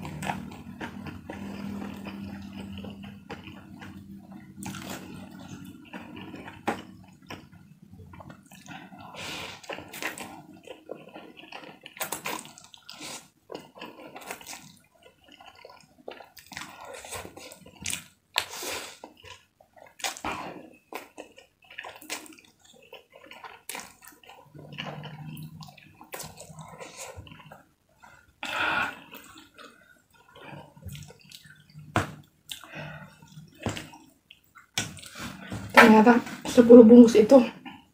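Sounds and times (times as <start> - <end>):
person slurping and chewing noodles: 0.0 - 35.7.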